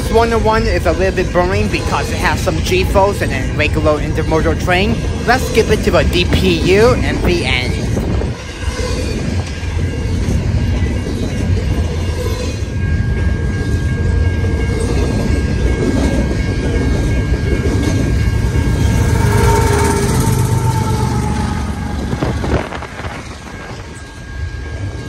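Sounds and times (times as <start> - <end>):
train wheels rumbling on rail: 0.0 - 25.0
locomotive engine: 11.6 - 25.0.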